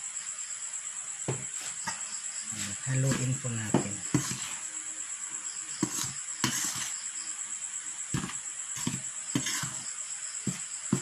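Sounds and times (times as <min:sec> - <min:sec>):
spoon stirring dry flour: 0:01.5 - 0:04.7, 0:05.7 - 0:07.1, 0:08.1 - 0:11.0.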